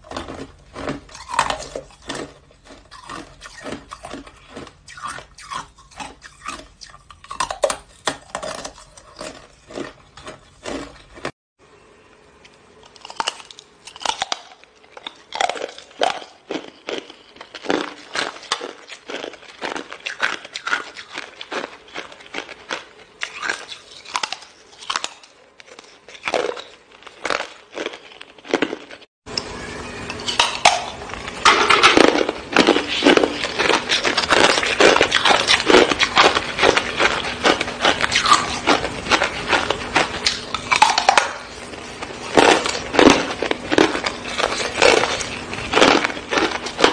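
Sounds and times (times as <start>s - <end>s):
ice crunching in the mouth: 0.0s - 11.3s, 12.8s - 29.1s, 30.3s - 46.9s.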